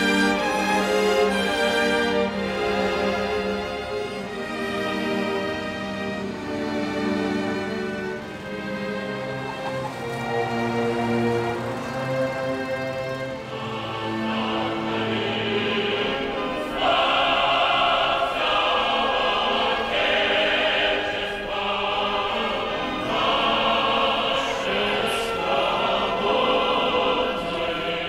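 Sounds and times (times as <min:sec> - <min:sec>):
choir singing: 0:00.0 - 0:28.0.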